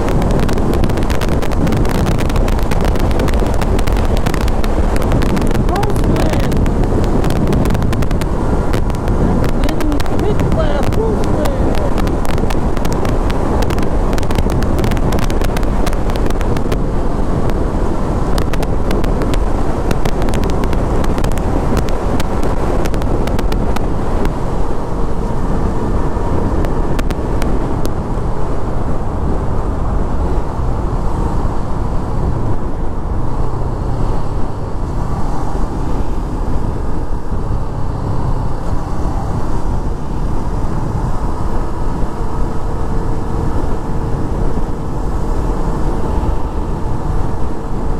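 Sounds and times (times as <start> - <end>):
motorcycle engine running: 0.0 - 29.2
road noise: 0.0 - 47.9
wind crackling on microphone: 0.0 - 47.9.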